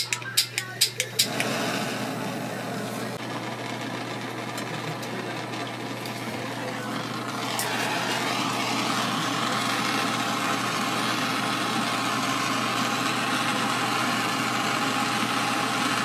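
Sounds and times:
gas torch hissing: 0.0s - 3.3s, 4.5s - 16.0s.

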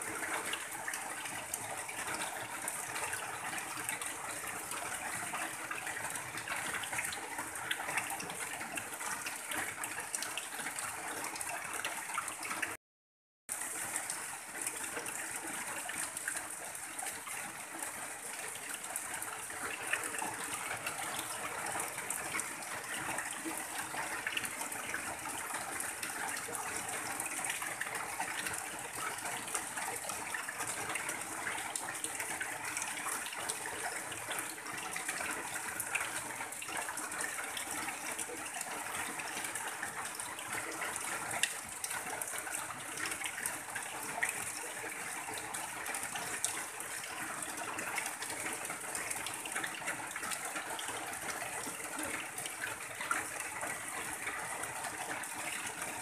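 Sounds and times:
steady rain: 13.5s - 56.0s.

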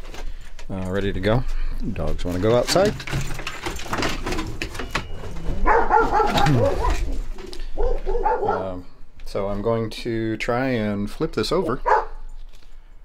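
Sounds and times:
dogs barking and yelping: 5.0s - 9.0s, 11.6s - 12.4s.

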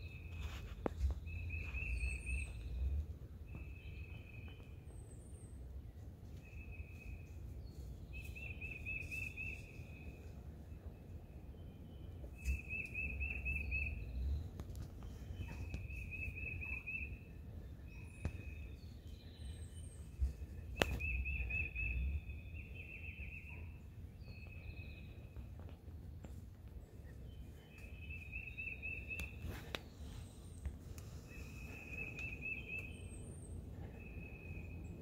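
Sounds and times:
low rumble: 0.0s - 7.9s.

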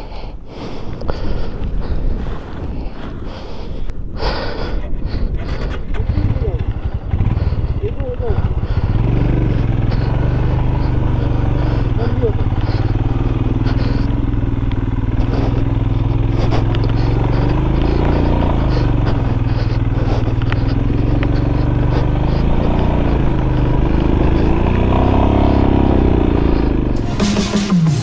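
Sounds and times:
motorcycle engine revving: 5.2s - 28.0s
music: 27.0s - 28.0s.

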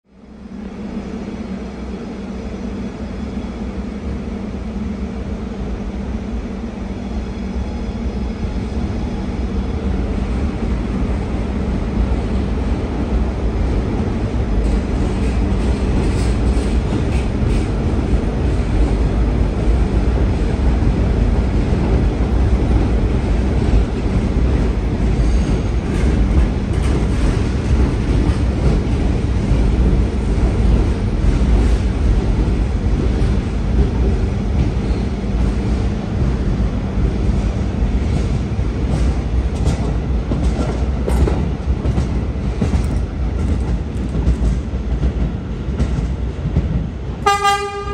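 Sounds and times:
subway train wheels rumbling: 0.0s - 47.9s.

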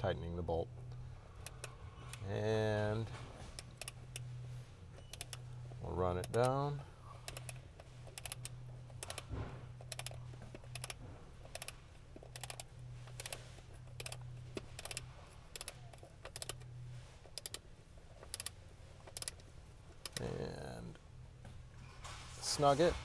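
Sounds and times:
ratchet wrench clicking: 3.6s - 4.2s, 7.3s - 13.4s, 14.0s - 16.6s, 17.4s - 17.6s, 18.2s - 18.5s, 19.1s - 19.4s.

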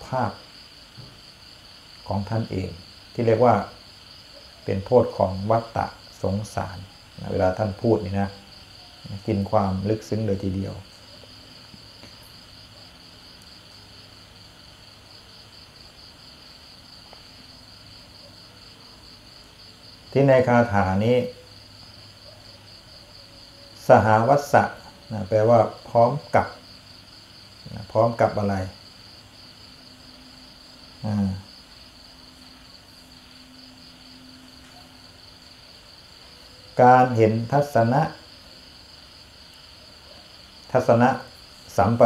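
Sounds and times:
crickets chirping: 0.0s - 42.0s
faint low hum: 0.0s - 42.0s.

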